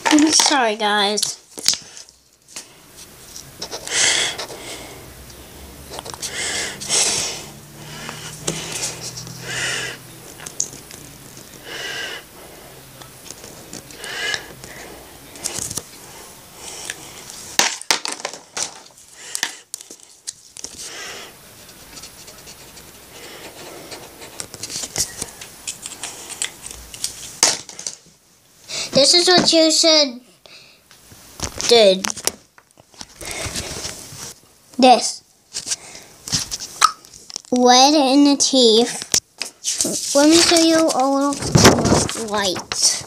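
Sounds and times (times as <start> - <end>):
marker scratching on paper: 3.6 - 4.6, 21.6 - 25.0
breathing close to microphone: 3.8 - 5.2, 6.2 - 10.1, 11.6 - 12.9, 13.5 - 17.4, 33.1 - 34.0, 35.6 - 36.2.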